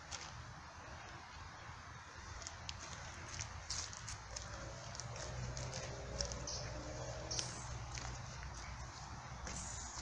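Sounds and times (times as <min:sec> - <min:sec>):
footsteps crunching on leaves: 0:02.3 - 0:10.0.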